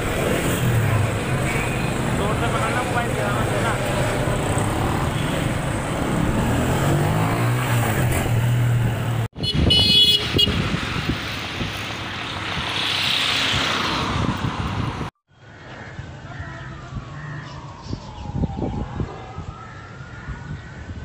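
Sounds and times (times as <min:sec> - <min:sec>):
road traffic noise: 0:00.0 - 0:21.0
car horn toot: 0:09.4 - 0:10.6.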